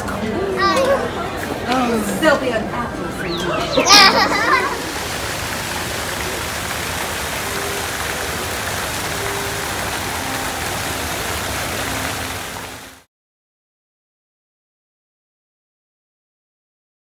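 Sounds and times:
steady rushing noise: 4.6 - 13.0.

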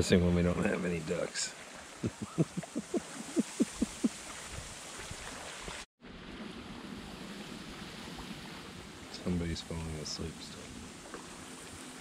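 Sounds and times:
wind hissing in reeds: 3.1 - 12.0.

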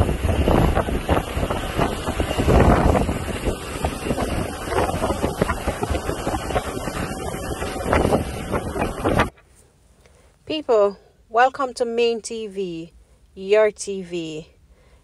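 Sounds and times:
motorcycle and car engines: 0.0 - 9.3
wind buffeting microphone: 0.0 - 9.3.

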